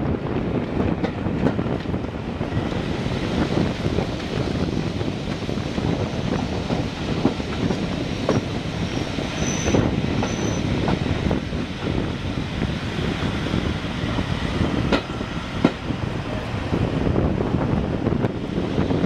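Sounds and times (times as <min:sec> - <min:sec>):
train wheels clicking over rail joints: 0:00.5 - 0:15.9
high wheel squeals: 0:08.3 - 0:10.8.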